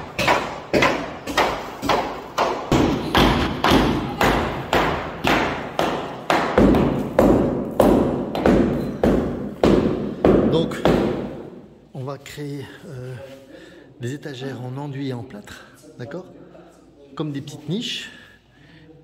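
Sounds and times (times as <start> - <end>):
hammer blows on masonry wall: 0.0 - 11.6.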